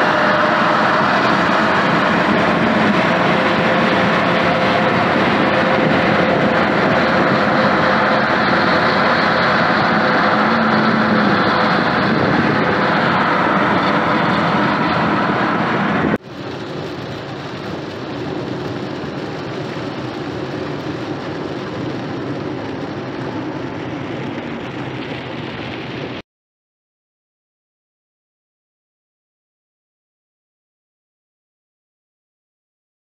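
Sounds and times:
car driving on wet road: 0.0s - 26.2s
car road and wind noise: 0.0s - 26.2s.

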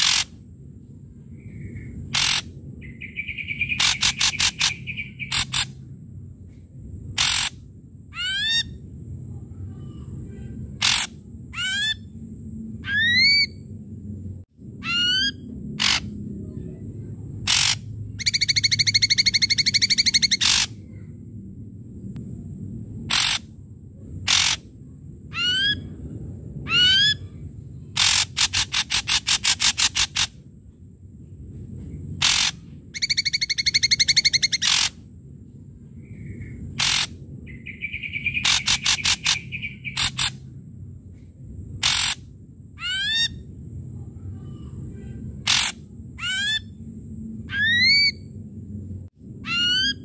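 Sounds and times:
bird rattling trill: 0.0s - 0.4s, 1.8s - 5.8s, 7.1s - 7.6s, 10.7s - 12.0s, 14.8s - 16.2s, 17.4s - 20.8s, 23.0s - 23.4s, 24.2s - 24.7s, 28.0s - 30.4s, 32.2s - 35.0s, 36.6s - 40.5s, 41.8s - 42.2s, 45.4s - 46.7s
bird singing harsh and whistled notes: 0.0s - 0.4s, 1.2s - 5.8s, 7.2s - 7.6s, 8.2s - 8.8s, 9.8s - 12.2s, 12.8s - 13.7s, 14.8s - 16.8s, 17.4s - 21.0s, 23.1s - 23.4s, 25.3s - 26.0s, 26.6s - 30.4s, 32.2s - 35.0s, 35.9s - 40.5s, 41.8s - 42.2s, 42.8s - 43.5s, 45.4s - 46.8s, 47.5s - 48.4s, 49.4s - 50.0s.

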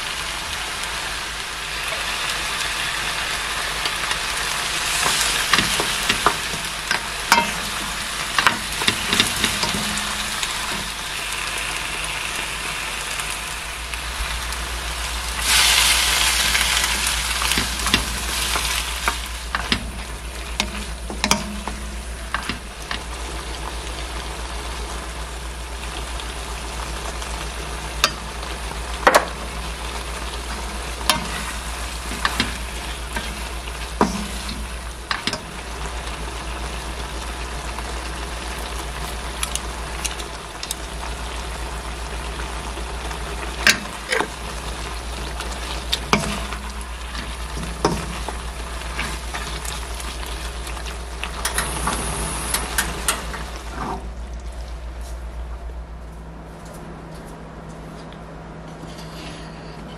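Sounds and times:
food sizzling in a frying pan: 0.0s - 53.8s.

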